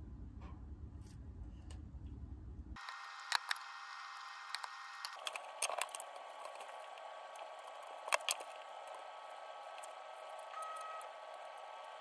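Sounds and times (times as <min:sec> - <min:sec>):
tape and plastic clicking: 0:02.8 - 0:09.0.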